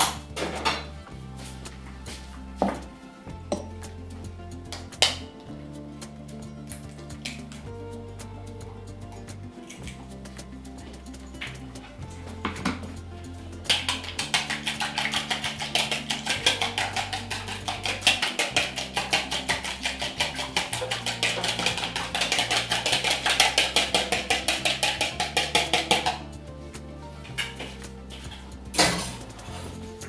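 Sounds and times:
background music with bass: 0.0s - 30.0s
whisk beating in plastic bowl: 13.7s - 26.4s.

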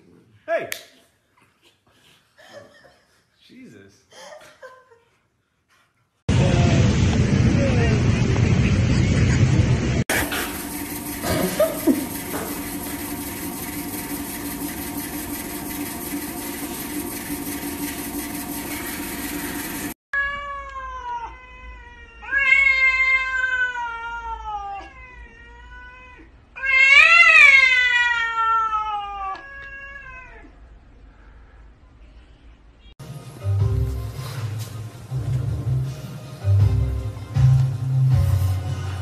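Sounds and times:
cat yowling: 20.2s - 30.6s.

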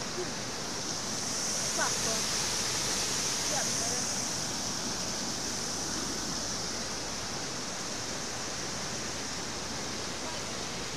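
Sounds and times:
floodwater rushing across road: 0.0s - 10.9s.

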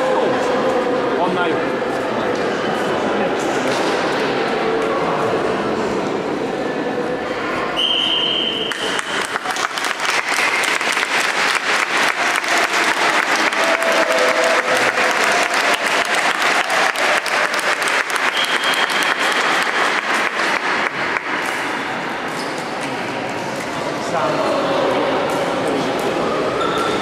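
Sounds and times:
referee's whistle blowing: 7.8s - 8.7s, 18.3s - 19.4s
hand-clapping applause: 8.7s - 21.9s.

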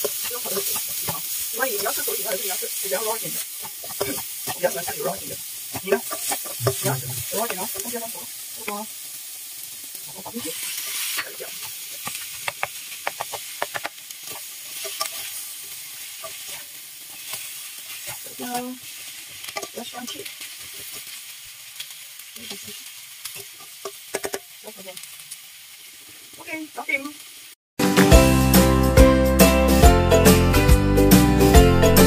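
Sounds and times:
spatula scraping pan: 0.0s - 8.1s, 10.0s - 21.2s
food sizzling in a wok: 0.0s - 29.5s.

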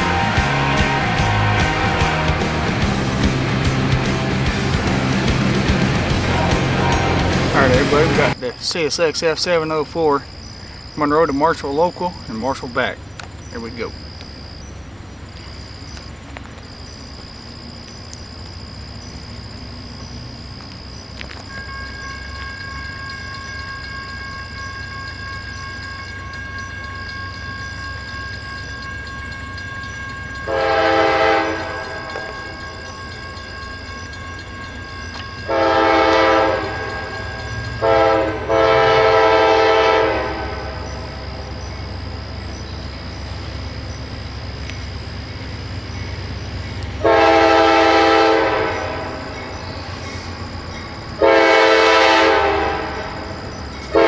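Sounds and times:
locomotive air horn blasts: 0.0s - 3.2s, 6.0s - 8.4s, 30.4s - 33.4s, 35.2s - 41.4s, 47.0s - 49.5s, 51.2s - 54.0s
low train rumble: 0.0s - 54.0s.

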